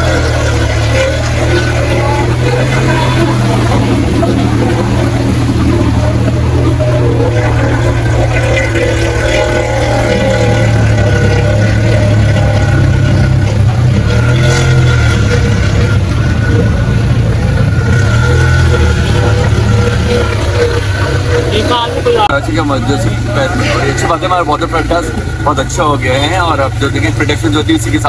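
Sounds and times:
vehicle engine running at low revs: 0.0s - 28.0s.

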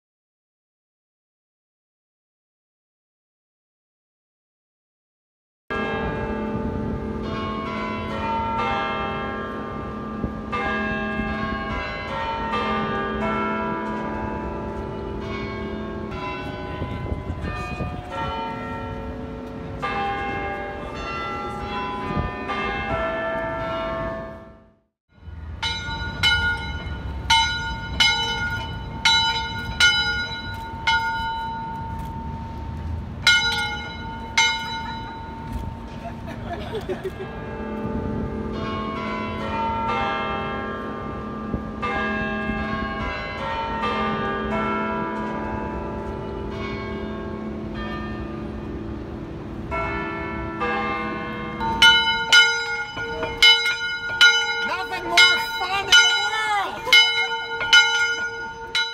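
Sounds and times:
church bells ringing a tune: 5.7s - 58.9s.

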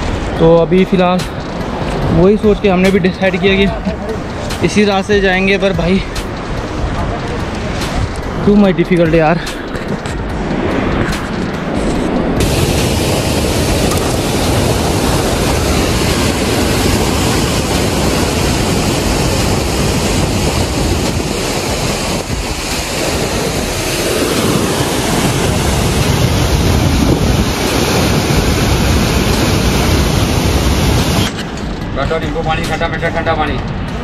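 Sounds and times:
waterfall rushing: 12.4s - 31.4s.

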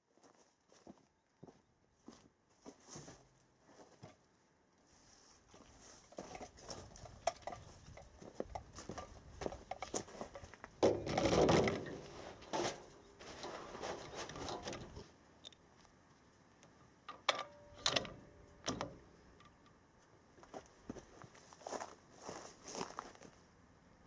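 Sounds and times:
rustling: 4.9s - 15.2s
rifle handling knocks and scraping: 6.1s - 15.1s.

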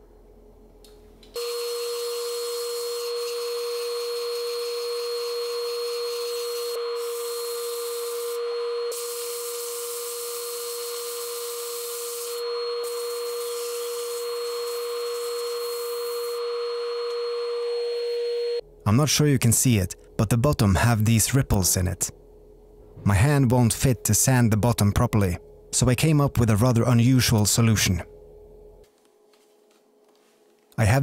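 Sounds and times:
wood lathe whine: 1.4s - 18.6s.

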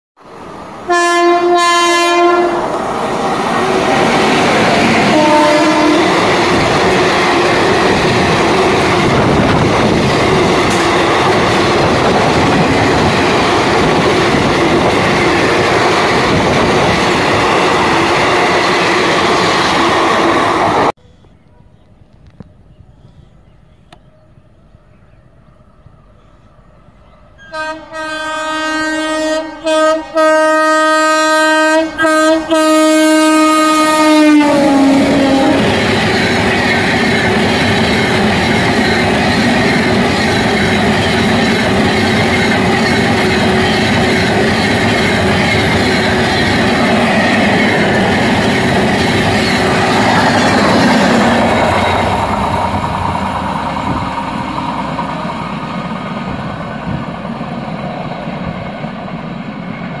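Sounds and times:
train wheels and coaches passing: 0.2s - 20.9s, 21.6s - 60.0s
locomotive horn: 0.9s - 2.8s, 5.0s - 6.4s, 27.4s - 35.8s.

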